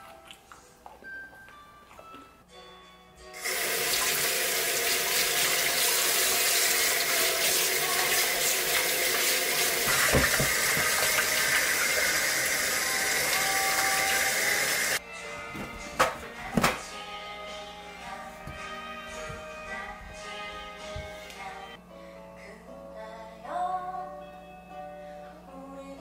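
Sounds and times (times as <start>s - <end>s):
faucet running into steel sink: 3.4s - 15.0s
dishes being scrubbed: 3.9s - 12.6s
dull knock against sink: 9.9s - 11.0s.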